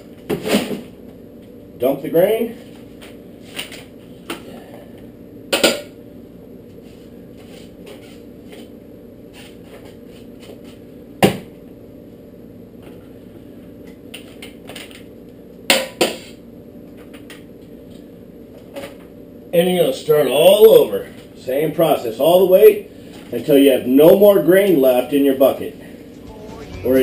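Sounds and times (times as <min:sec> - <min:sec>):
steady low hum: 0:24.4 - 0:27.0.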